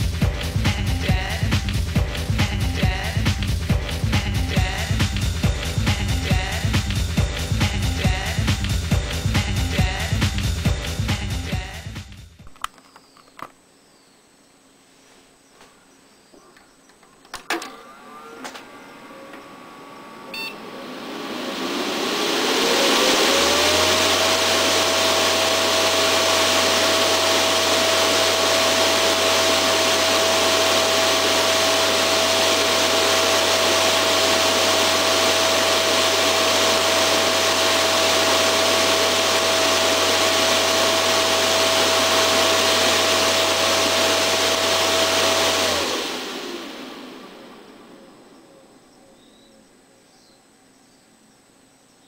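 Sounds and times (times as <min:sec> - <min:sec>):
fan clicks: 0:16.5 - 0:18.7
cooling fan whine: 0:16.9 - 0:51.9
fan air rush: 0:20.1 - 0:48.9
low hum: 0:43.0 - 0:51.3.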